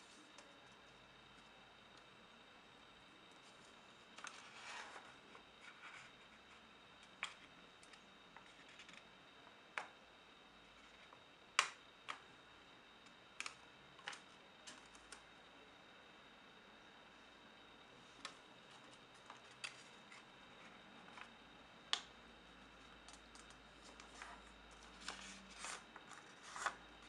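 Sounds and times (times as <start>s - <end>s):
paper rustling: 23.4s - 26.8s.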